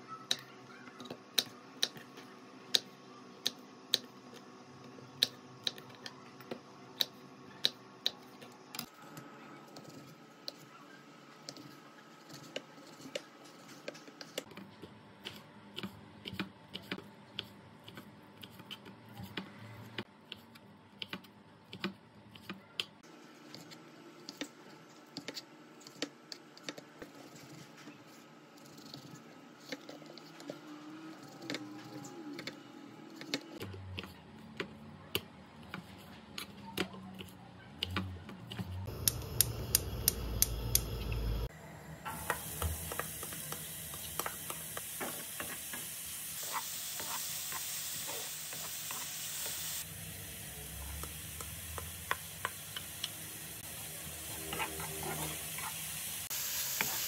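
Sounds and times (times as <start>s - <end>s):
gas burner rumble: 38.9s - 45.9s
gas igniter clicking: 39.0s - 41.0s.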